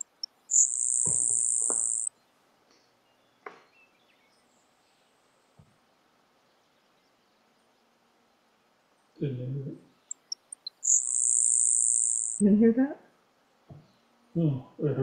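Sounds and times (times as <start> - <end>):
bird buzzing song: 0.0 - 2.2, 10.0 - 12.4.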